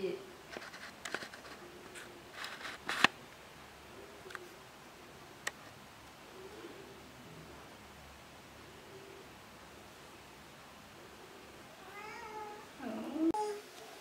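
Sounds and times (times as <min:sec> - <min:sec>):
soft rustles: 0:00.4 - 0:03.2.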